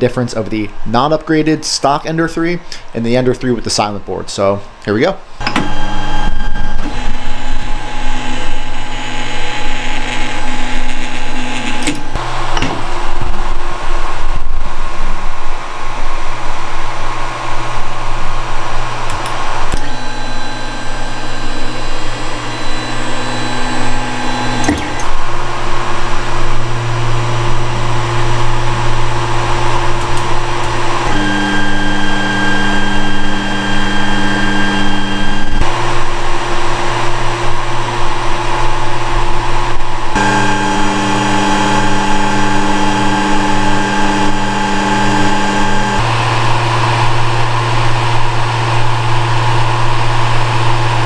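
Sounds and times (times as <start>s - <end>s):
steady hum: 0.0s - 51.0s
stepper motors whining: 5.4s - 13.3s, 19.0s - 51.0s
clicks: 22.1s - 25.2s, 30.0s - 35.7s.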